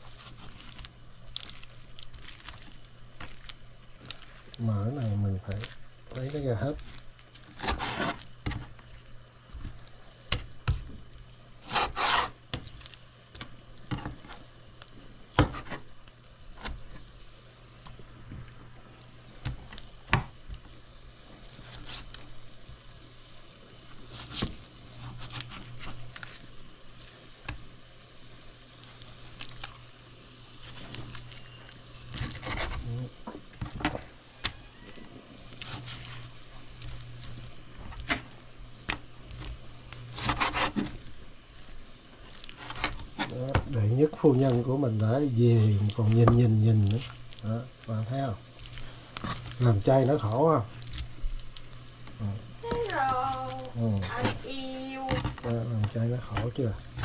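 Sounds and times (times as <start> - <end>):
knife scraping raw chicken: 6.3 - 8.4, 11.6 - 12.4, 40.0 - 41.0.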